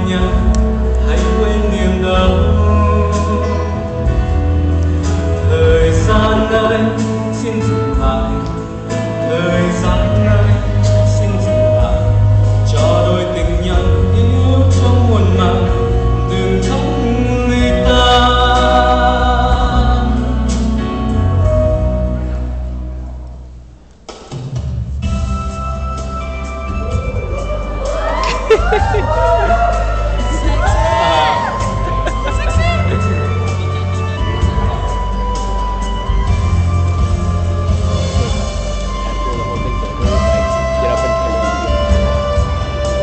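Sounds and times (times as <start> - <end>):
man singing into a microphone: 0.0 - 4.2, 5.4 - 21.8
instrumental accompaniment with bass: 0.0 - 43.0.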